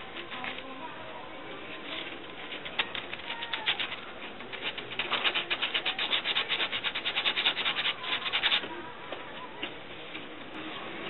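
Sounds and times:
rapid scraping on wooden frame: 0:01.7 - 0:08.8.

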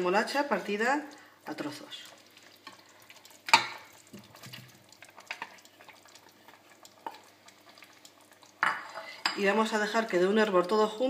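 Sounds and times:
food plopping into broth: 0:02.1 - 0:08.8.

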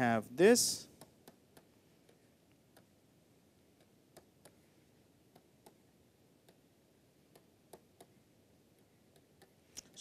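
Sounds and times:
stylus tapping on tablet: 0:01.0 - 0:03.0, 0:03.7 - 0:04.7, 0:05.3 - 0:06.7, 0:07.3 - 0:10.0.

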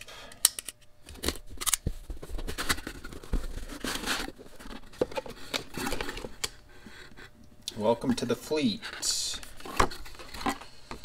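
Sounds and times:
cardboard rustling and scraping: 0:01.8 - 0:07.3, 0:08.0 - 0:11.0.

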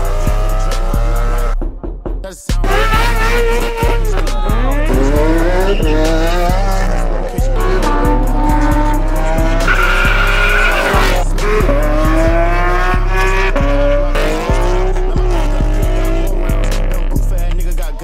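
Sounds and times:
sports car engines revving: 0:00.0 - 0:01.6, 0:02.6 - 0:18.0
hip-hop bass beat: 0:00.0 - 0:18.0.

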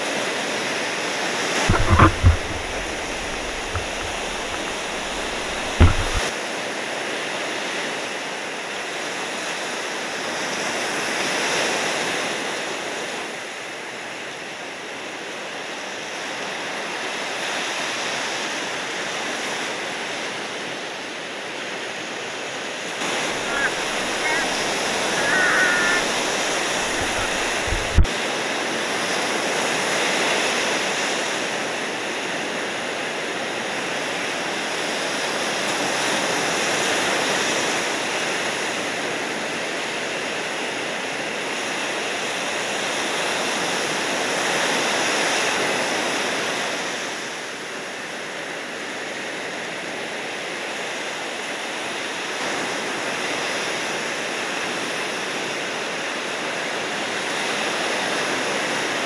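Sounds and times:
ocean surf breaking: 0:01.6 - 0:06.3, 0:23.0 - 0:28.1.

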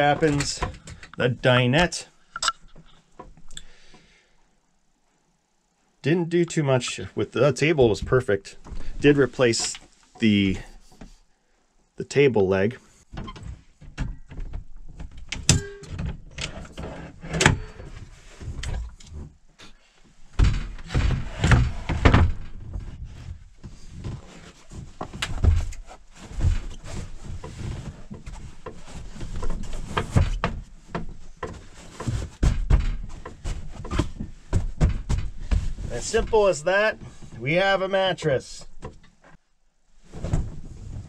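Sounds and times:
foam cushions thudding and rustling: 0:20.3 - 0:37.2, 0:40.0 - 0:41.0.

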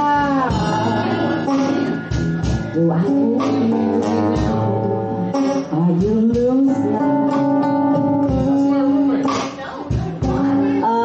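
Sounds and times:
drums: 0:00.0 - 0:11.0
electric guitar melody: 0:00.0 - 0:11.0.

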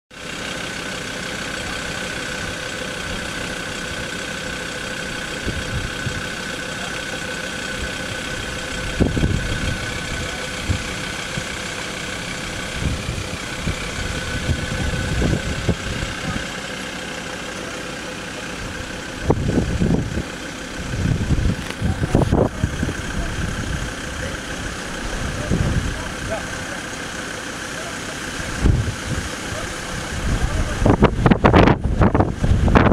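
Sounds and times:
vehicle engine idling: 0:00.1 - 0:32.9
low rumbles and bumps: 0:05.3 - 0:06.3, 0:07.8 - 0:17.0, 0:18.6 - 0:27.0, 0:28.4 - 0:32.9.

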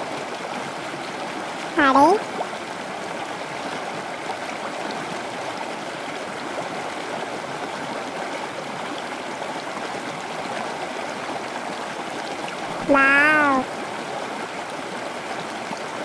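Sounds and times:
running water rushing and trickling: 0:00.0 - 0:16.0.

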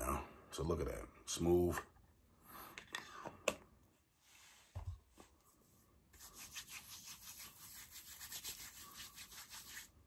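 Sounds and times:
palms rubbing together: 0:06.1 - 0:10.0.

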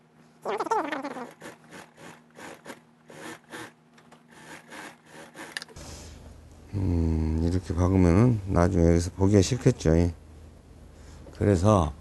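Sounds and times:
low steady hum: 0:05.6 - 0:12.0.

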